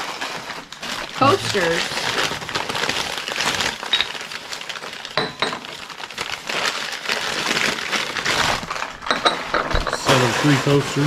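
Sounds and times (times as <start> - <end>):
wrapping rustling: 0.0 - 11.0
glass clinks: 5.2 - 5.6.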